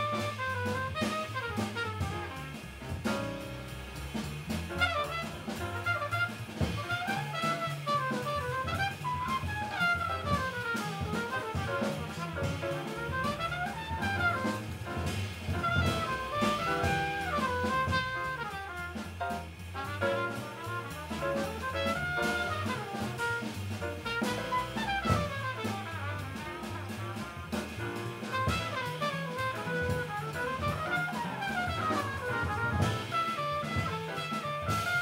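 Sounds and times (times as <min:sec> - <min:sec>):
trumpet melody: 0:00.0 - 0:03.1, 0:04.7 - 0:35.0
bass: 0:00.0 - 0:35.0
drums: 0:00.0 - 0:35.0
piano: 0:00.0 - 0:35.0.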